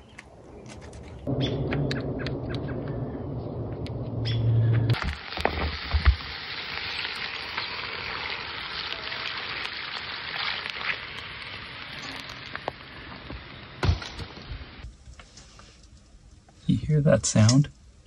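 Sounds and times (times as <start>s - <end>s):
water hissing on hot coals: 4.9s - 18.0s.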